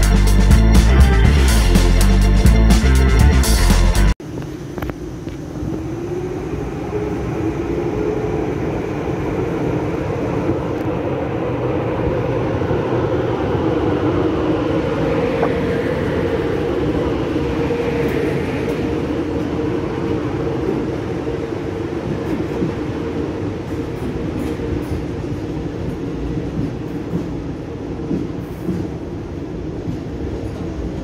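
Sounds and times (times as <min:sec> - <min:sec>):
electric locomotive humming: 0:00.0 - 0:31.0
train wheels rumbling: 0:00.0 - 0:31.0.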